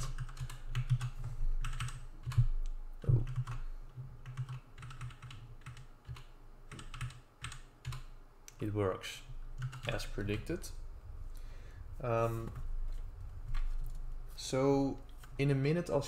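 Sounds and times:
typing on a keyboard: 0:00.0 - 0:02.5, 0:03.1 - 0:03.6, 0:04.2 - 0:08.1, 0:09.6 - 0:10.0.

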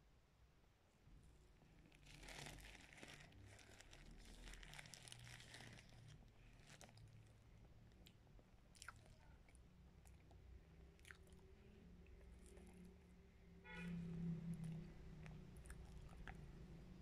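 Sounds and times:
plastic bag crinkling: 0:01.9 - 0:07.3.

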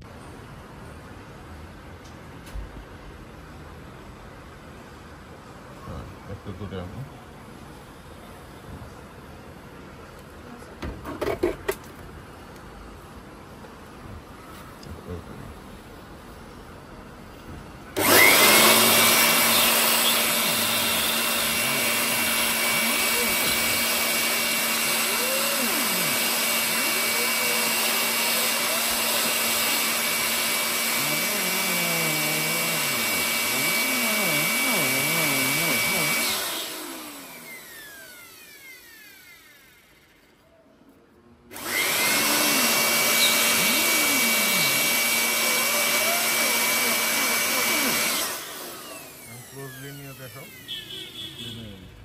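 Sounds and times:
air blower whining: 0:17.4 - 0:40.4, 0:41.5 - 0:51.6.

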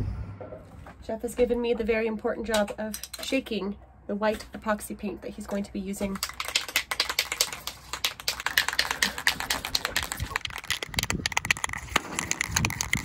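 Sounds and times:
spray can ball rattling: 0:06.1 - 0:13.0.

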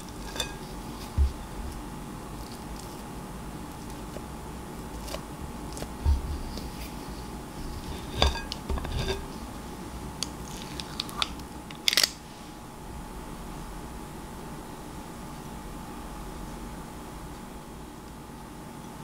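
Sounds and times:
metal scoop scraping glass bowl: 0:00.0 - 0:01.1, 0:07.6 - 0:09.4.

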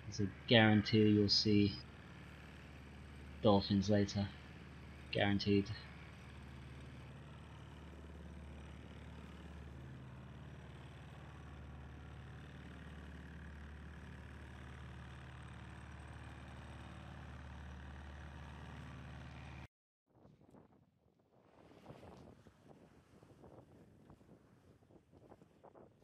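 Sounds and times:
boat engine humming: 0:00.0 - 0:19.6.

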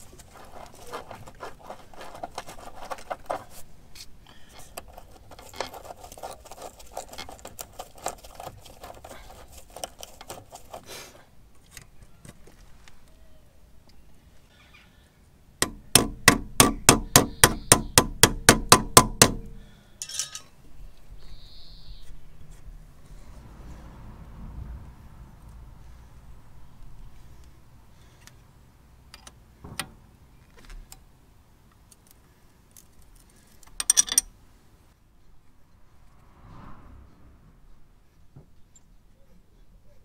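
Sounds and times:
small metal parts clicking: 0:20.0 - 0:20.5, 0:31.8 - 0:34.4.

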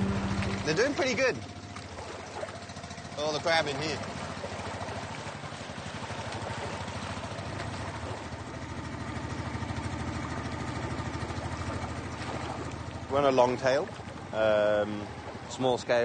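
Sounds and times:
boat engine throbbing: 0:00.0 - 0:16.0.

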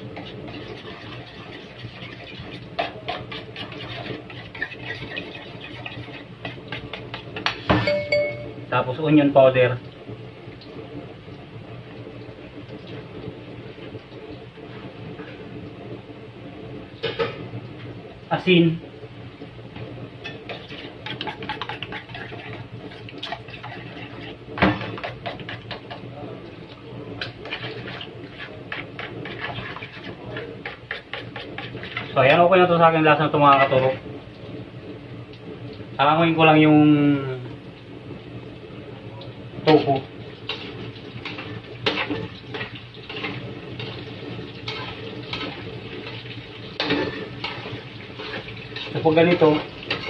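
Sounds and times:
tofu sizzling in hot oil: 0:00.0 - 0:07.7, 0:33.6 - 0:50.0
spoon clinking and scraping bowl: 0:20.3 - 0:22.6.

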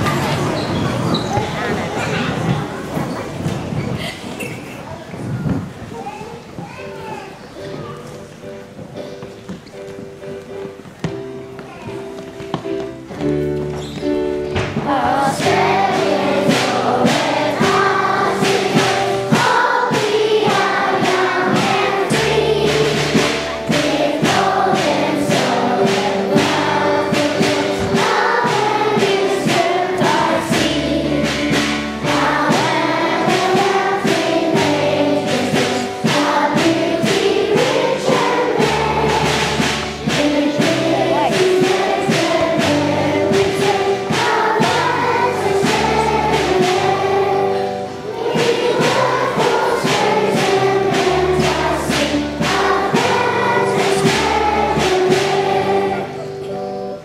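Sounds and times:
children singing together: 0:14.6 - 0:57.0.

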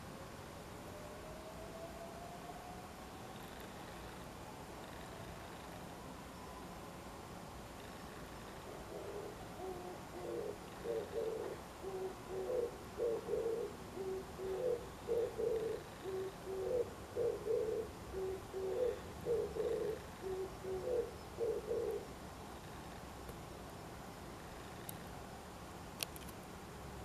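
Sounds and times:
dove cooing: 0:08.5 - 0:22.1.

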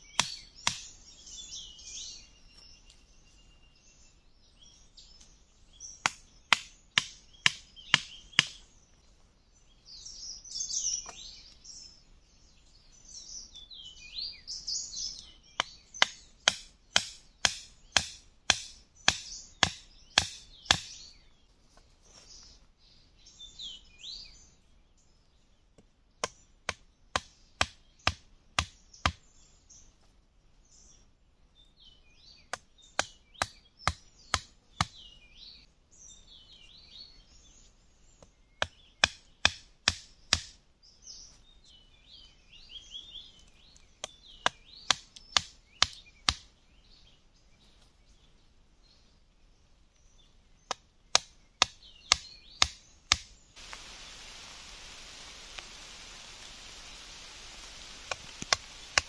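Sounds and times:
birds chirping: 0:00.0 - 0:30.0, 0:30.6 - 0:59.0
machete striking bamboo: 0:00.2 - 0:00.9, 0:06.0 - 0:08.6, 0:15.6 - 0:21.0, 0:26.2 - 0:29.2, 0:38.6 - 0:40.6, 0:44.0 - 0:46.5, 0:50.7 - 0:53.3.

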